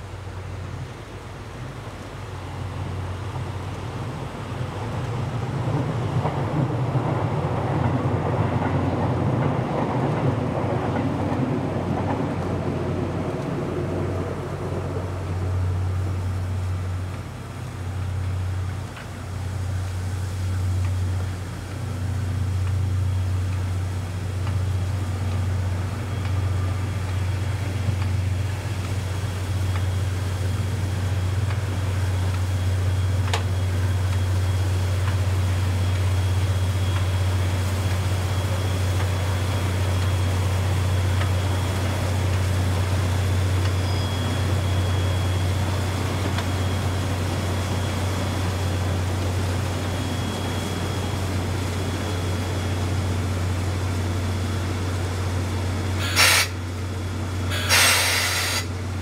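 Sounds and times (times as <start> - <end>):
faint high whine: 12.9 - 59.0.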